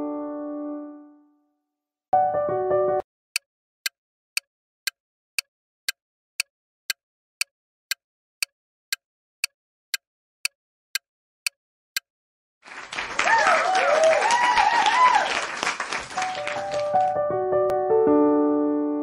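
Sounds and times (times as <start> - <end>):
timer ticking: 3.4 - 12.1.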